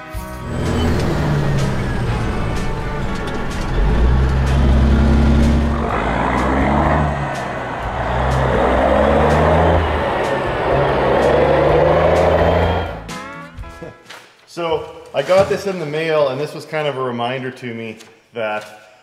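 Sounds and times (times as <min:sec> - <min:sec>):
diesel truck engine shifting gears: 0:00.0 - 0:13.2
rushing exhaust: 0:00.0 - 0:13.2.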